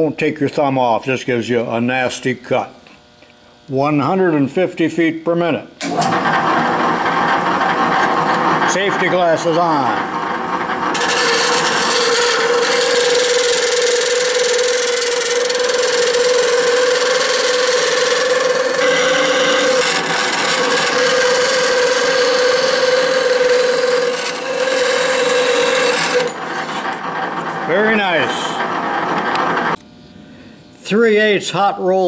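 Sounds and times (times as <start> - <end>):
bandsaw cutting steel: 5.8 - 29.8.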